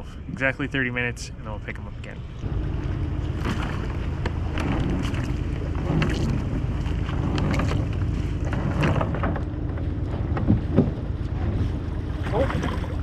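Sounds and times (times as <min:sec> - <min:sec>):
water splashing against hull: 0:01.7 - 0:13.0
wind rumbling on microphone: 0:02.2 - 0:13.0.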